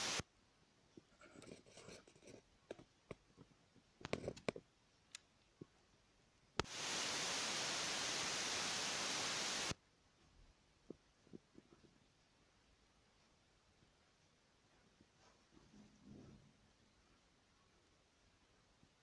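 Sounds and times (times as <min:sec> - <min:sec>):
steady hiss: 0:00.0 - 0:01.1, 0:04.8 - 0:19.0
faint clicks and rustling: 0:00.9 - 0:05.8.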